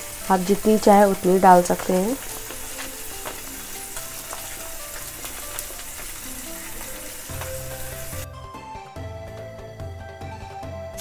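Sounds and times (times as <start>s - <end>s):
oil sizzling and popping in pan: 0.0s - 8.3s
soft background music: 0.0s - 11.0s.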